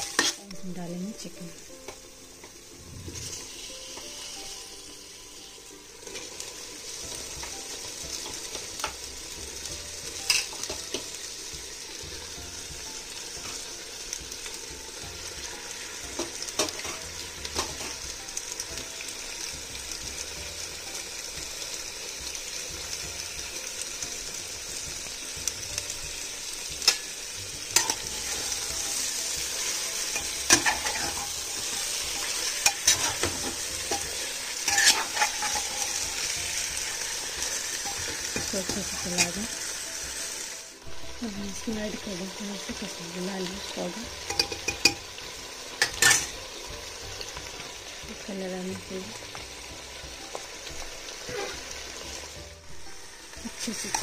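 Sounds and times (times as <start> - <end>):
chicken sizzling in hot oil: 0.0 - 54.0
steel spoon scraping pot: 30.1 - 36.2.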